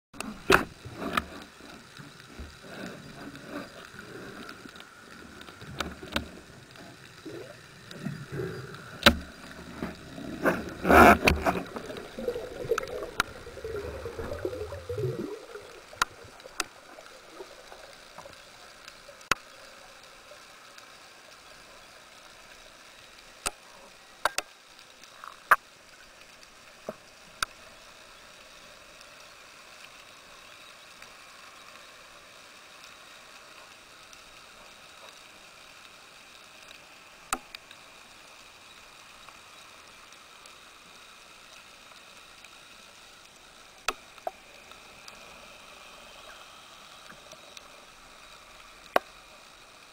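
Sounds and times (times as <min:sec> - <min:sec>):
quiet hiss: 0:00.2 - 0:49.9
underwater rumbling and knocking: 0:05.1 - 0:18.4.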